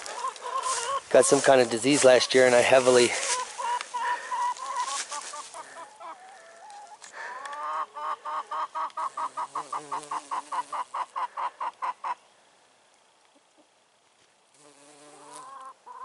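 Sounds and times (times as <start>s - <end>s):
hens clucking: 0.0s - 12.2s, 15.4s - 16.0s.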